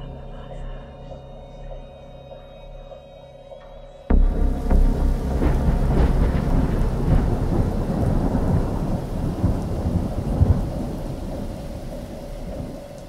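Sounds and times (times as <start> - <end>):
steady rain: 4.1 - 13.0
thunder rumbling: 4.1 - 13.0.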